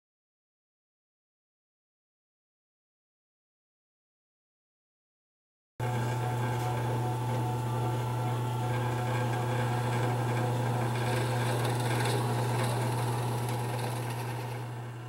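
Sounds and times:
drill bit boring into wood: 0:05.8 - 0:15.0
drill press humming: 0:05.8 - 0:15.0.

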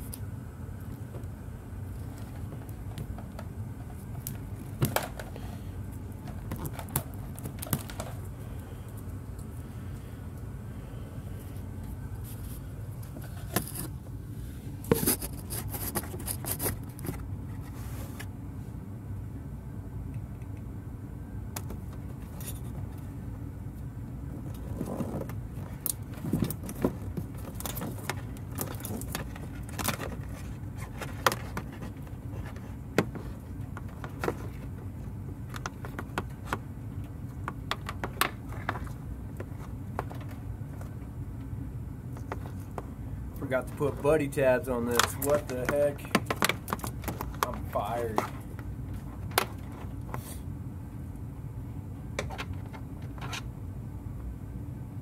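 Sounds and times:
steady low hum: 0:00.0 - 0:55.0
wiring clicking and scraping on plastic: 0:01.9 - 0:09.6, 0:11.8 - 0:14.0, 0:14.8 - 0:18.3, 0:24.4 - 0:41.5, 0:42.1 - 0:50.3.

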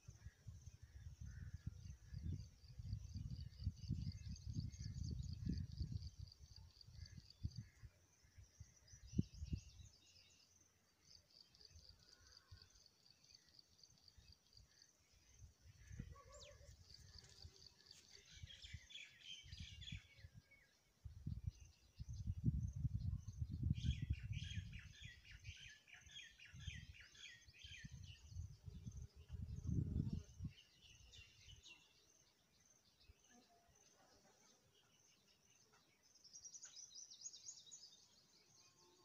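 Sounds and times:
wind rumbling on microphone: 0:00.0 - 0:07.8, 0:08.5 - 0:09.9, 0:15.3 - 0:25.5, 0:27.7 - 0:31.6
small birds chirping and trilling: 0:00.0 - 0:39.0.

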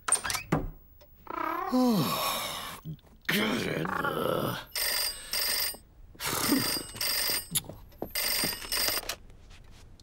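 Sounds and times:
mumbled vocal sound: 0:02.8 - 0:04.7
telephone bell ringing: 0:04.7 - 0:05.8, 0:06.4 - 0:09.1.

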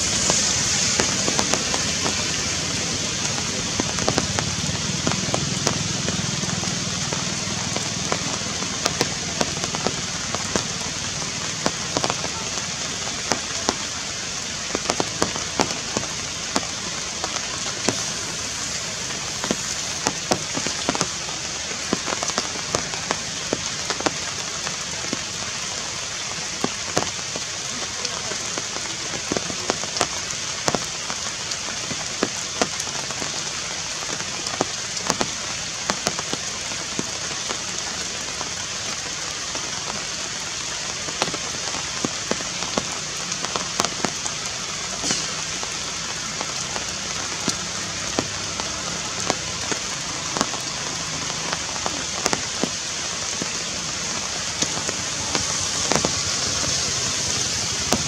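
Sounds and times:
rain hiss: 0:00.0 - 0:58.0
raindrops ticking: 0:00.0 - 0:58.0.

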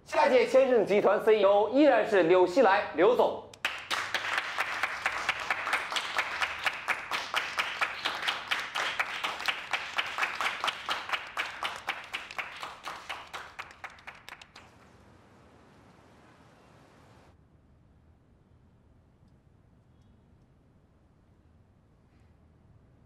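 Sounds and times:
small group clapping: 0:03.6 - 0:15.0.

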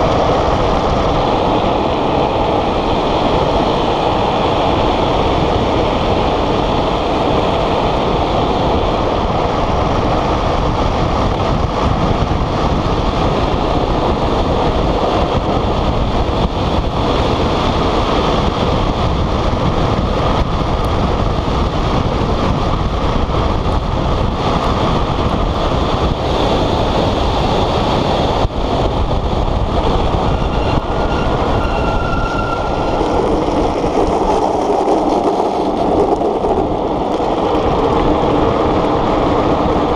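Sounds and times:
wheels rumbling on asphalt: 0:00.0 - 0:39.9
wind on microphone: 0:00.0 - 0:39.9
thin squeal: 0:30.3 - 0:33.0.

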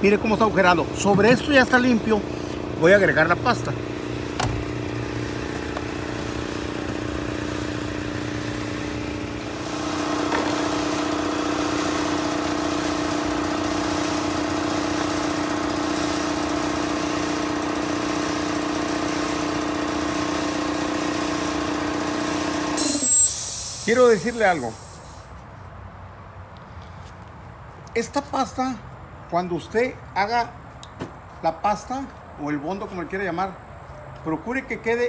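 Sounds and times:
engine droning hum: 0:00.0 - 0:16.4.

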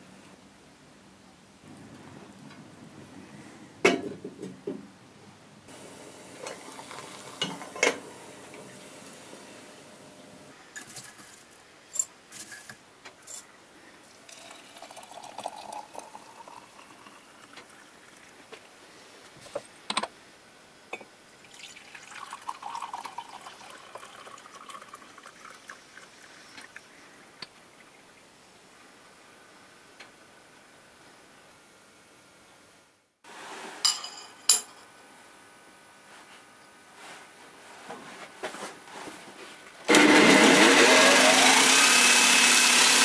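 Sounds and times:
water pouring: 0:06.3 - 0:07.8, 0:14.1 - 0:18.4, 0:21.4 - 0:26.8
tea pouring into mug: 0:06.3 - 0:07.9, 0:14.2 - 0:18.3, 0:21.4 - 0:26.8.

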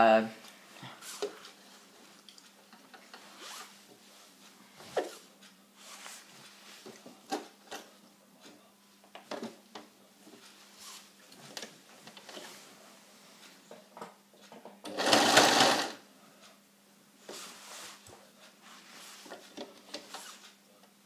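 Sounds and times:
faint steady hum: 0:00.0 - 0:21.0
cloth rustling: 0:03.1 - 0:05.2.

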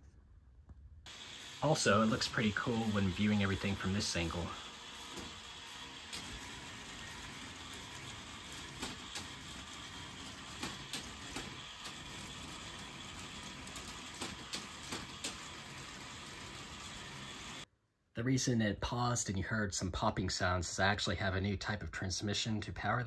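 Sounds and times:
toy chain and gears running: 0:01.2 - 0:17.6.

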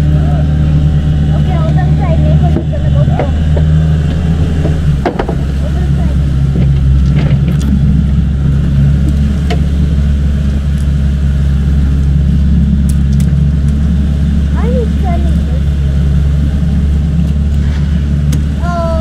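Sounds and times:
outboard motor running: 0:00.0 - 0:19.0
knocks and clicks of boat fittings: 0:02.5 - 0:05.6.

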